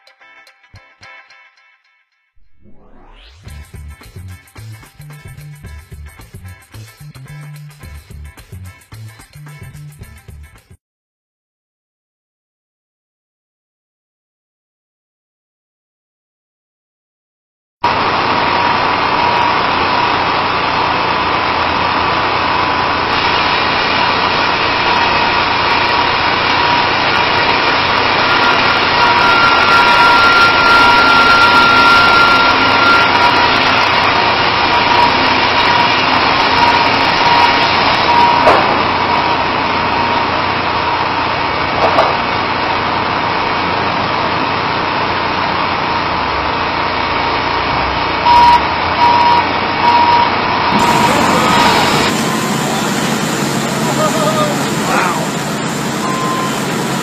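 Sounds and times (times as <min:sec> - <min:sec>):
wheel loader engine running: 0:03.5 - 0:10.5, 0:17.8 - 0:57.0
thin steady whine: 0:17.9 - 0:57.0.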